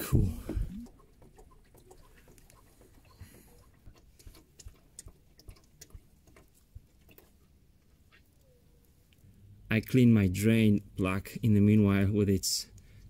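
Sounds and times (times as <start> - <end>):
oil pattering into plastic pan: 0.3 - 7.6.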